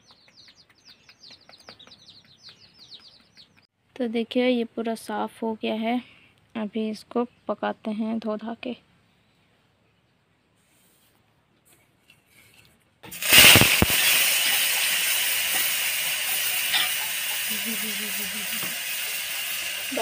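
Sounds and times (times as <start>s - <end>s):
pan clatter: 13.0s - 17.6s
food sizzling in a hot pan: 13.1s - 20.0s.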